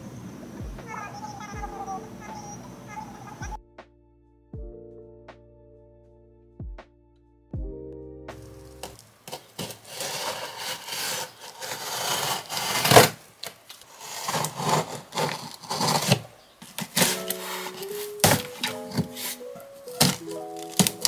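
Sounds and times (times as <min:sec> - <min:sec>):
soft music: 0:00.4 - 0:09.2, 0:16.9 - 0:21.0
hands rubbing cardboard box: 0:08.8 - 0:21.0
box cutter scraping tape: 0:09.3 - 0:21.0.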